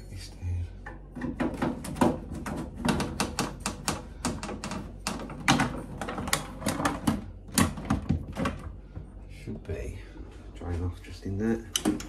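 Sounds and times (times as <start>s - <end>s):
clicks and knocks on plastic: 0.8s - 8.7s.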